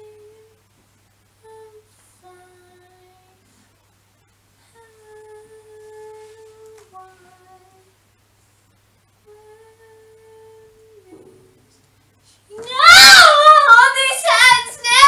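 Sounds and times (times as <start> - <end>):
woman humming softly: 4.7 - 7.9, 9.2 - 11.7.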